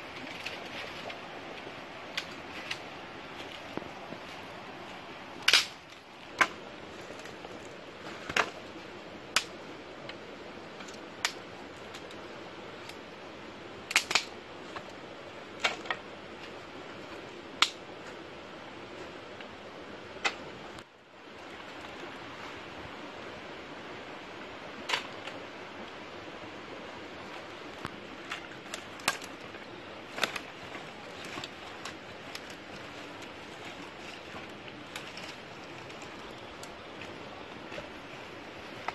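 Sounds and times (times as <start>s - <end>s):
outdoor hiss: 0.0s - 38.9s
sharp cracks: 5.4s - 6.5s.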